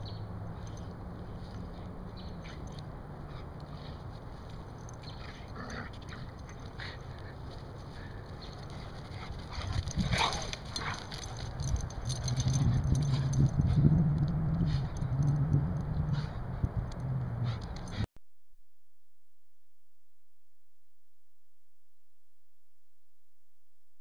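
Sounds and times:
dogs scuffling: 2.4s - 13.5s
dogs growling: 5.1s - 7.4s, 9.1s - 18.0s.

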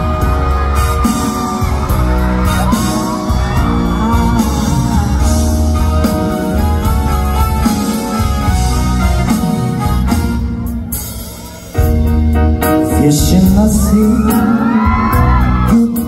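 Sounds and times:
heavy bass and drums: 0.0s - 15.8s
man singing: 12.7s - 16.0s.

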